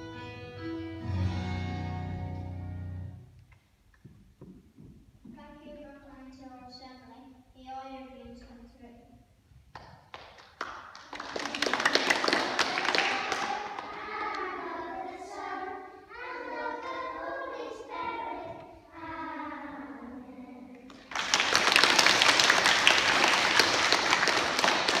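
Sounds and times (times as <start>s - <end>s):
applause: 9.8s - 14.4s, 20.9s - 25.0s
young children singing: 11.4s - 21.3s.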